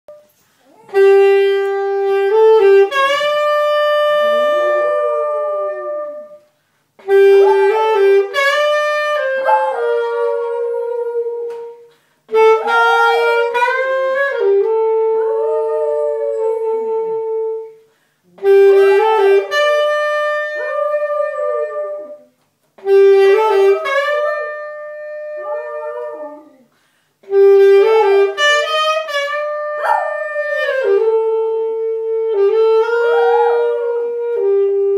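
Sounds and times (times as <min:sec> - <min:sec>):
saxophone playing long notes: 0:00.1 - 0:34.9
small dog howling: 0:29.8 - 0:30.6, 0:32.9 - 0:34.0.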